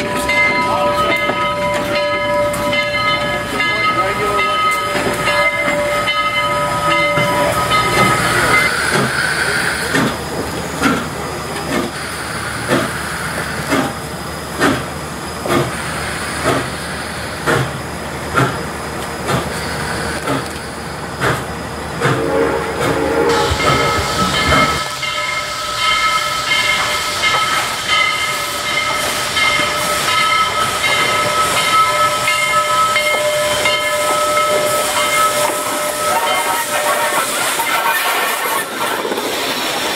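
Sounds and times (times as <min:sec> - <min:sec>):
steam hissing: 0:00.0 - 0:39.9
steam locomotive whistle: 0:22.0 - 0:27.8, 0:28.4 - 0:38.8.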